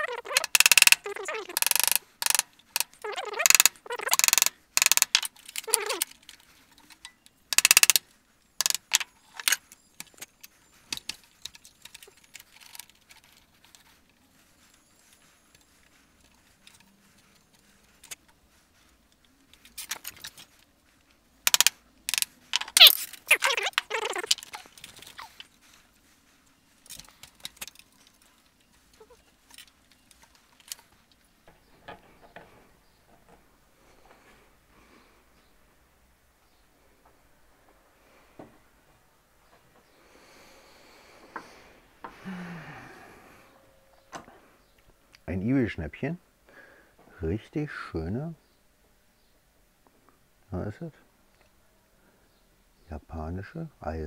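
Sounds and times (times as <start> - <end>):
small clicks: 0.0 - 8.0, 8.6 - 14.0, 19.1 - 25.6.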